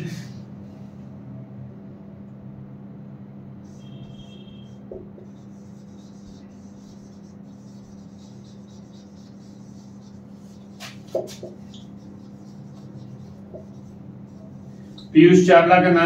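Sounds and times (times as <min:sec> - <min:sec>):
steady low hum: 0:00.0 - 0:16.0
marker squeaking on a whiteboard: 0:03.7 - 0:15.2.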